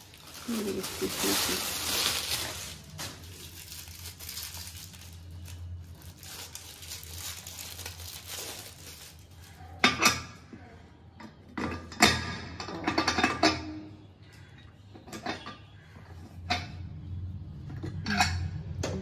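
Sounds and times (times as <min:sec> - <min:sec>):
plastic wrapping rustling: 0:00.0 - 0:09.9.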